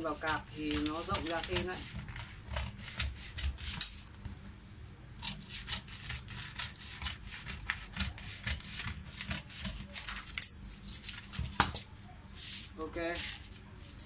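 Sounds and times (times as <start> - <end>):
shears snipping paper: 0.0 - 4.1.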